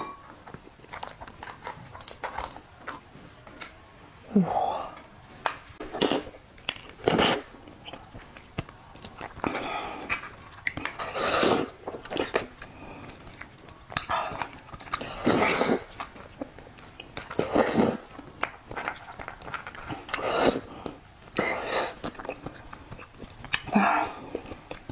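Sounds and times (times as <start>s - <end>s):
chewing: 0.0s - 3.8s, 5.0s - 24.9s
sucking and slurping: 5.8s - 16.4s, 17.0s - 24.9s.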